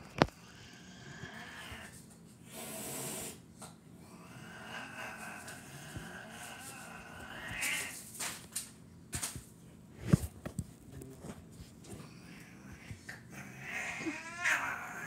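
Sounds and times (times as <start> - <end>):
cat yowling: 13.4 - 15.0.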